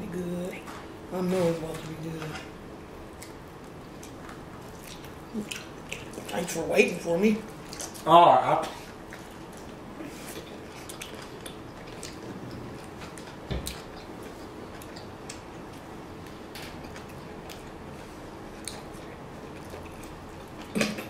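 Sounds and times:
low room hum: 0.0 - 21.0
chewing with wet mouth clicks: 3.1 - 6.6, 7.5 - 17.8, 18.5 - 21.0.

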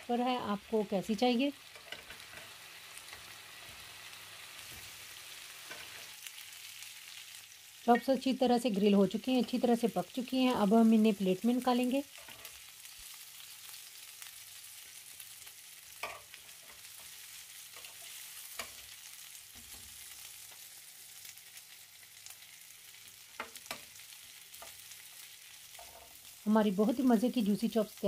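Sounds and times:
meat sizzling in a grill pan: 0.0 - 28.0.

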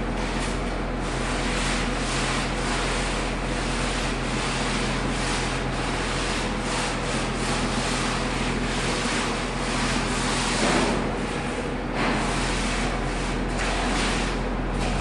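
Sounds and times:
machine droning: 0.0 - 15.0
straightedge scraping wet screed: 0.4 - 15.0.

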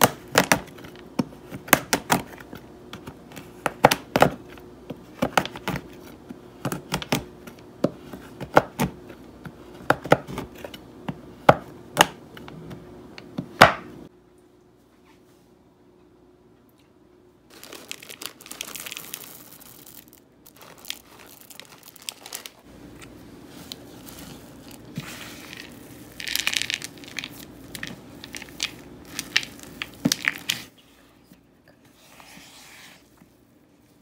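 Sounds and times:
spatula folding cookie dough: 0.0 - 13.7, 22.2 - 31.1
low steady hum: 0.0 - 34.0
crunching: 17.5 - 30.7.

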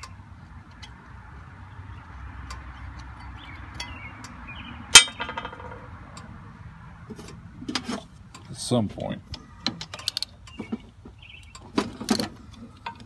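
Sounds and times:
sharp metallic clank: 4.9 - 5.9.

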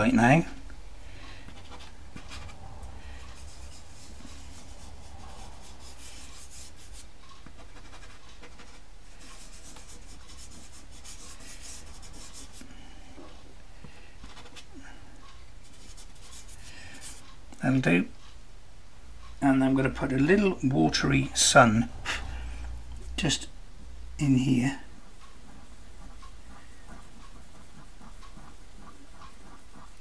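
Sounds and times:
fingertip rubbing pastel on paper: 3.2 - 12.6, 15.6 - 17.2, 25.4 - 30.0.

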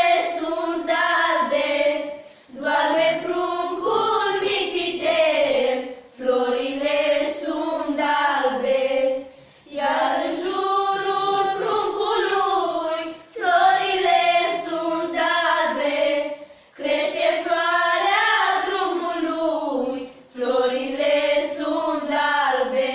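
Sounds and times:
girls singing unaccompanied: 0.0 - 22.9.

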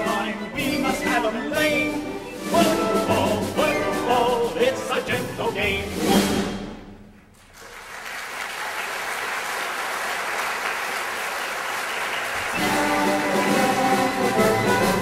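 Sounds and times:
orchestra playing: 0.0 - 7.2, 11.8 - 15.0
audience applauding: 7.4 - 15.0.

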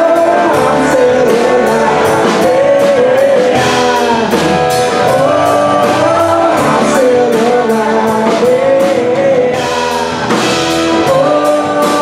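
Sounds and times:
bass guitar: 0.0 - 12.0
drums and cymbals: 0.0 - 12.0
electric guitar: 0.0 - 12.0
man singing into a microphone: 0.0 - 12.0.

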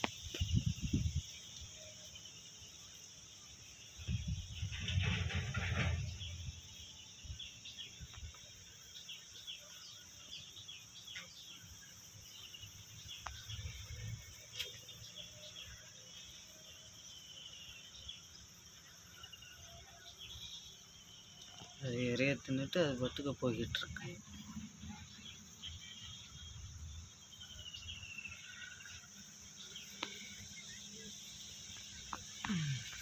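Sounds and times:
high-pitched insect drone: 21.4 - 33.0.

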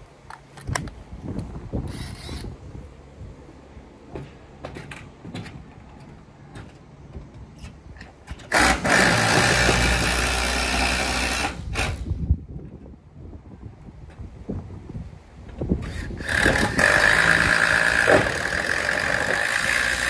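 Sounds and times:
power drill driving screw into metal: 1.9 - 2.5, 8.4 - 12.1, 15.8 - 20.0.

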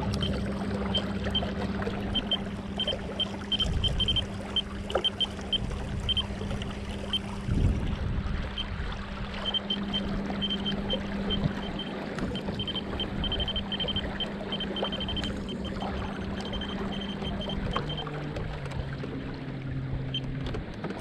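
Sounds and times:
electric trolling motor humming: 0.0 - 21.0
rough noise against hull: 0.0 - 21.0
water sloshing: 0.0 - 21.0
short high beeps: 0.1 - 1.5, 2.1 - 6.3, 9.4 - 18.1.

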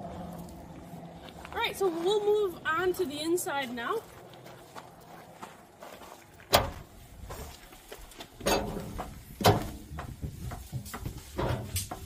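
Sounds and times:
footsteps knocking on trailer steps: 8.3 - 12.0.

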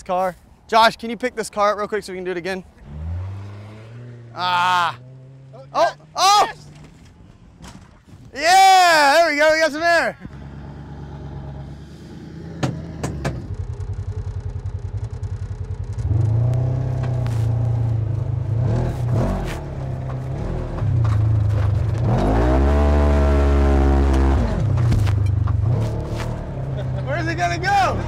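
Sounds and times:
vehicle engine revving: 2.8 - 6.8, 10.3 - 28.0
engine knocks: 12.5 - 17.3.

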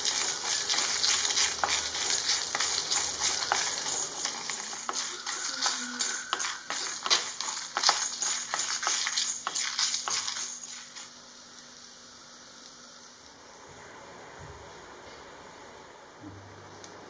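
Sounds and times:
seeds rattling against pan: 0.0 - 11.2
spatula scraping pan: 0.0 - 11.2.

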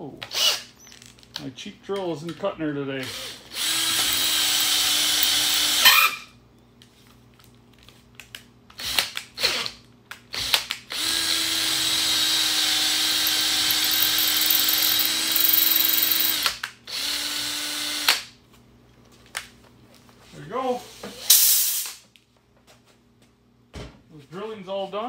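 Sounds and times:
cordless drill boring metal: 3.0 - 6.2, 10.4 - 18.1.

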